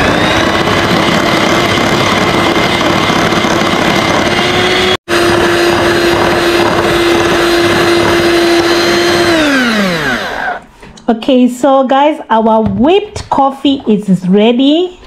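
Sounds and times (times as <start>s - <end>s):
electric hand mixer running: 0.0s - 10.7s.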